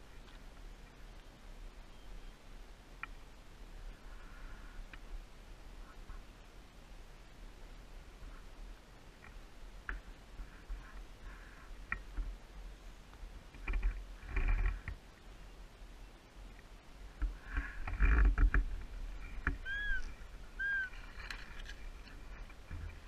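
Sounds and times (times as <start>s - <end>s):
rustling through long grass: 0.0s - 23.0s
bird chirps: 1.8s - 2.4s, 19.6s - 21.0s.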